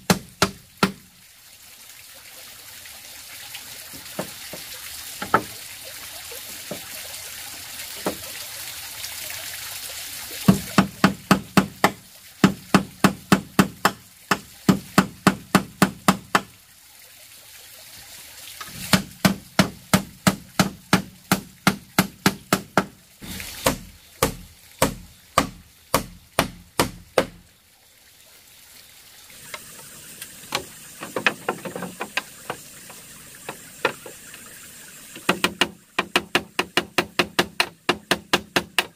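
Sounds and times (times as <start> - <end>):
hammer striking wooden post: 0.0 - 1.0, 10.5 - 16.5, 18.9 - 23.0, 23.6 - 27.4, 35.2 - 38.9.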